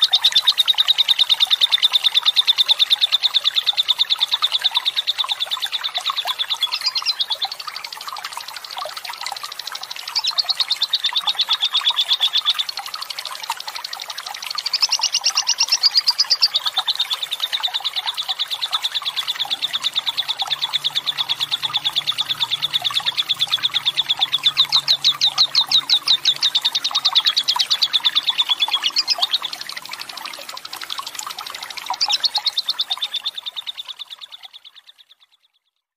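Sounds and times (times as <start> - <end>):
lovebird trilling: 6.5 - 7.4, 14.5 - 29.7, 31.8 - 33.8.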